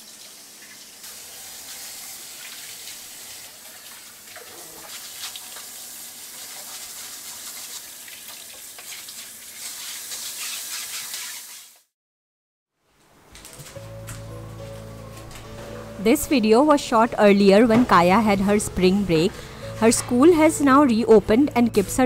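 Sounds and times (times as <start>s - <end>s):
tap water running into sink: 0.0s - 11.6s
dish brush scrubbing: 1.1s - 11.8s, 14.6s - 21.3s.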